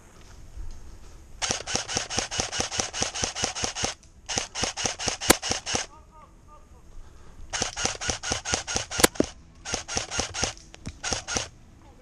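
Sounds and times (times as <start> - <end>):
airsoft rifle full-auto bursts: 1.4 - 5.9, 7.5 - 11.5.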